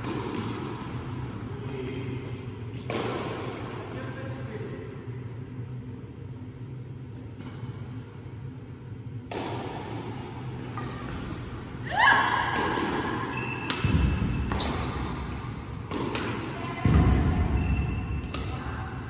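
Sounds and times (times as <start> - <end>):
shoes squeaking on sports floor: 7.4 - 8.6, 10.7 - 12.1, 13.2 - 15.9, 16.7 - 18.2
racket striking shuttlecock: 9.3 - 10.9, 12.5 - 14.6, 15.8 - 17.1, 18.2 - 18.6.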